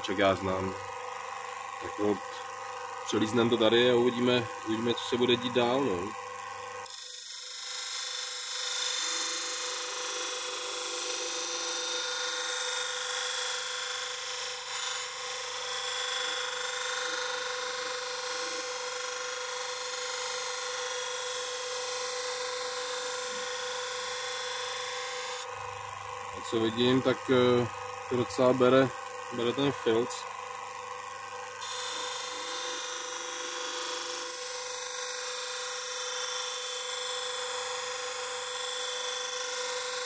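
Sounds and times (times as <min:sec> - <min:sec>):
bench grinder motor whine: 0:00.0 - 0:40.0
blade hissing on polishing wheel: 0:06.8 - 0:25.5, 0:31.6 - 0:40.0.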